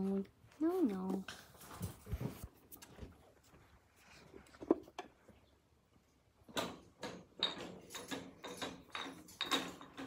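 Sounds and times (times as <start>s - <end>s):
puppies scuffling on a blanket: 0.0s - 4.5s.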